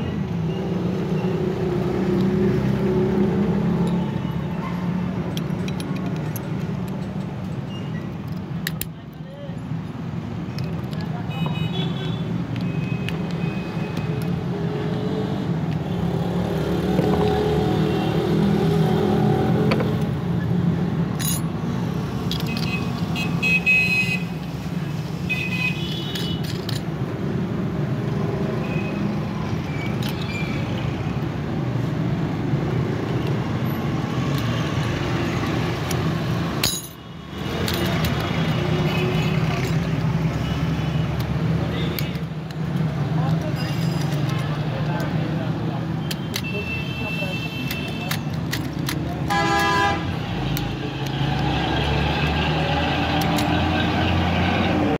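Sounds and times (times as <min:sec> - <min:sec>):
road traffic rumble: 0:00.0 - 0:54.9
metallic clicks of lock parts: 0:05.1 - 0:09.2, 0:10.4 - 0:11.1, 0:12.4 - 0:14.5, 0:21.1 - 0:23.4, 0:25.9 - 0:27.1, 0:29.5 - 0:31.4, 0:33.0 - 0:40.0, 0:41.1 - 0:46.7, 0:47.6 - 0:49.3, 0:50.4 - 0:51.5, 0:53.1 - 0:53.6.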